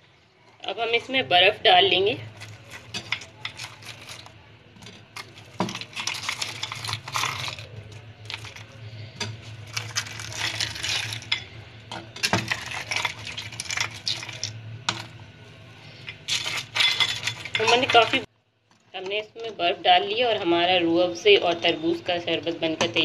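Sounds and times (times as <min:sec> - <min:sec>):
ice cubes clinking against glass: 0:16.2 - 0:18.2.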